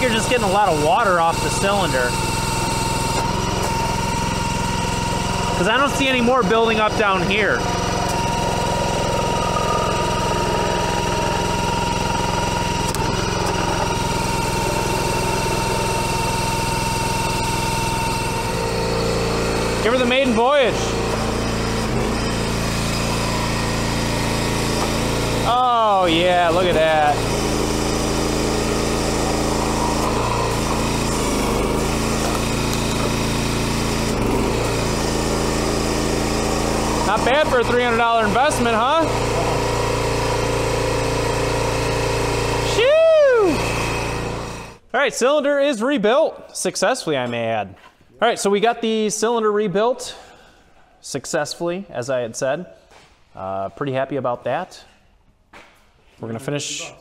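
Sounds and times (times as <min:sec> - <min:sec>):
thin steady whine: 0:00.0 - 0:33.2
small gasoline engine running: 0:00.0 - 0:44.8.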